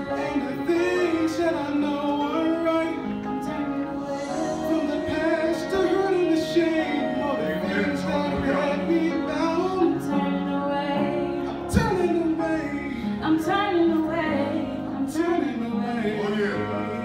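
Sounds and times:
held musical accompaniment: 0:00.0 - 0:17.0
woman singing into a microphone: 0:10.0 - 0:12.1, 0:13.1 - 0:15.8.

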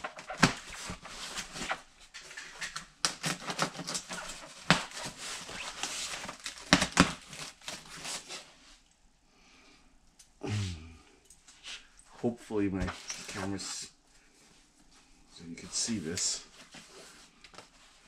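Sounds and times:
cardboard snapping: 0:06.2 - 0:07.2.

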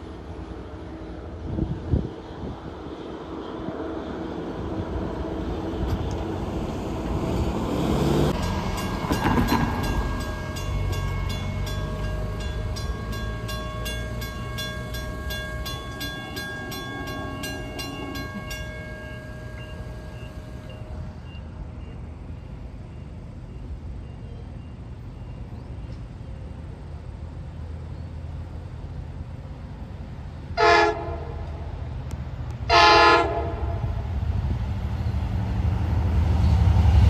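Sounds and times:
crossing warning bell ringing: 0:06.9 - 0:25.5.

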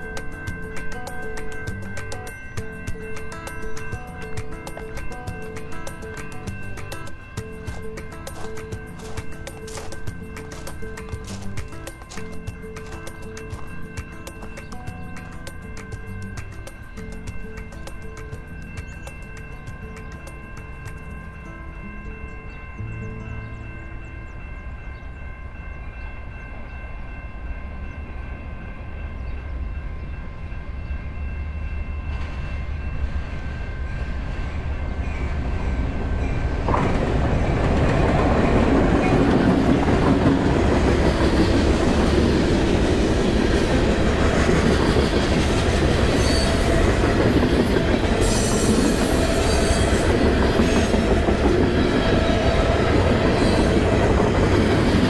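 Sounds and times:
wheels clattering over rails: 0:00.0 - 0:21.1, 0:36.4 - 0:55.0
diesel freight train passing: 0:00.0 - 0:55.0.

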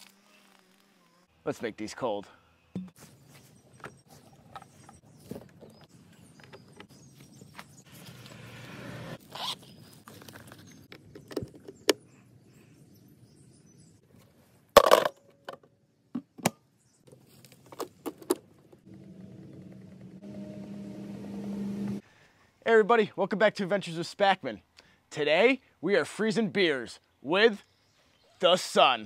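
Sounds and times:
zipper opening: 0:08.1 - 0:10.1
steady low hum: 0:18.8 - 0:22.0.

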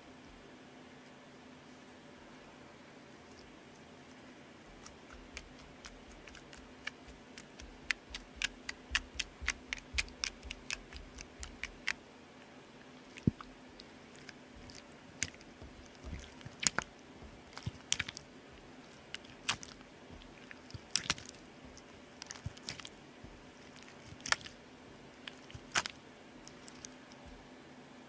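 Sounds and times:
slime wet pops and clicks: 0:17.5 - 0:18.2, 0:19.2 - 0:19.8, 0:20.7 - 0:21.4.

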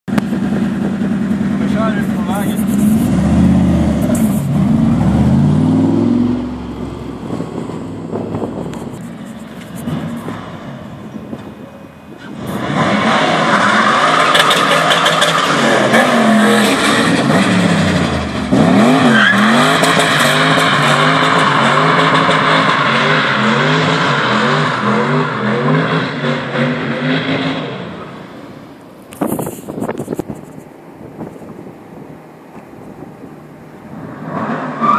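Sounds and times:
car engine revving hard: 0:00.3 - 0:08.7, 0:12.3 - 0:28.2.

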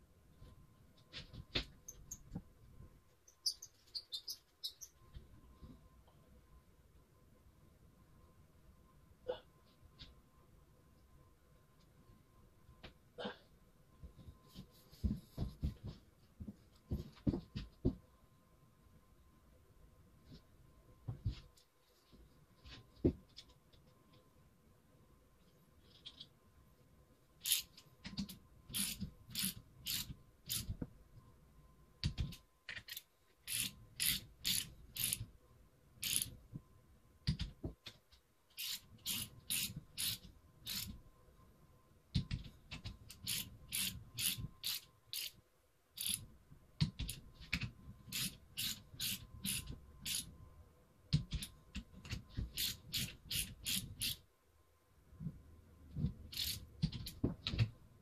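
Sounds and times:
ratchet wrench clicking: 0:27.4 - 0:27.7, 0:36.0 - 0:36.3.

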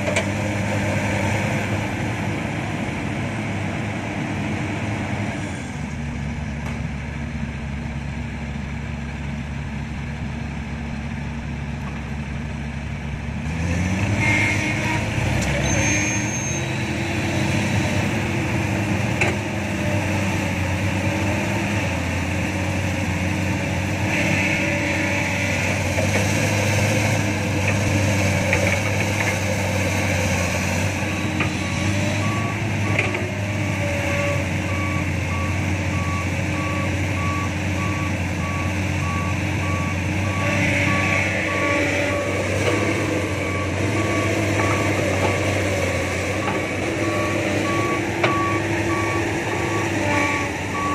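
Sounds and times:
diesel engines running: 0:00.0 - 0:50.9
reversing alarm beeps: 0:34.7 - 0:42.4, 0:43.4 - 0:45.5, 0:46.1 - 0:50.9.

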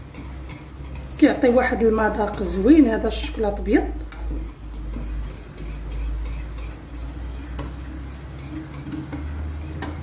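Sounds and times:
whisk stirring in a saucepan: 0:00.0 - 0:10.0
whisk clinking against pan: 0:04.1 - 0:10.0.

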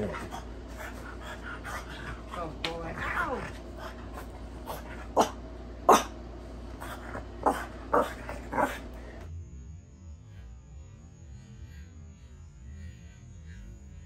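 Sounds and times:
dog barking: 0:04.6 - 0:06.1, 0:06.8 - 0:08.9.

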